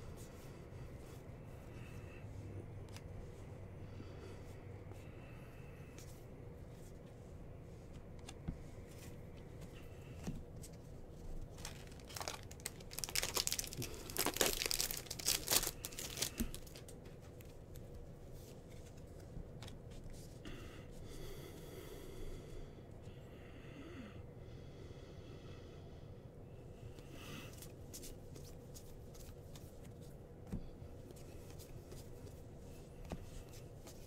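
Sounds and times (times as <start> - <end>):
wrapper tearing and crinkling: 11.5 - 16.9.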